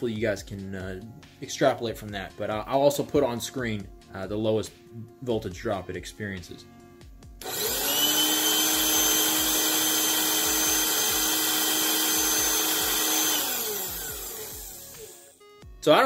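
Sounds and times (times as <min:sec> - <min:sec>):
handheld vacuum motor whine: 0:07.4 - 0:15.4.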